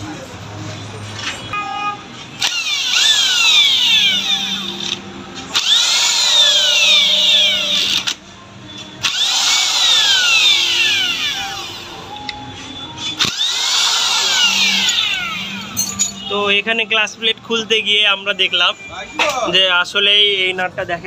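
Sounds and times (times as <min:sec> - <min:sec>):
electric power wrench whining: 0:02.4 - 0:08.2, 0:09.0 - 0:12.4, 0:13.0 - 0:16.3.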